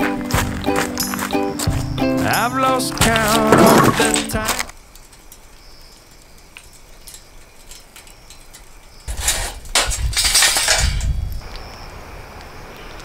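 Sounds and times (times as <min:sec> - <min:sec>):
charcoal crackling and tinkling: 0:02.2 - 0:12.5.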